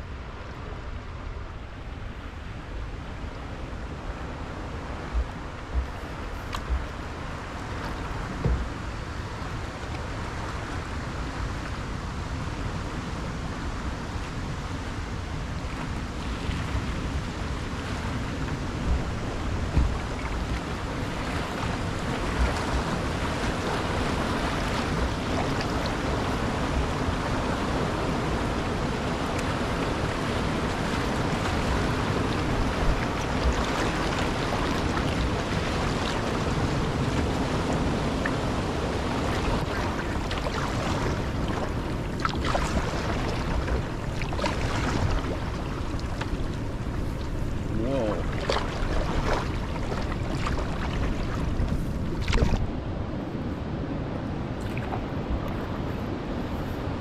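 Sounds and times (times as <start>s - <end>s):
wind buffeting microphone: 2.7s - 57.0s
rapids rushing over rock: 17.9s - 52.8s.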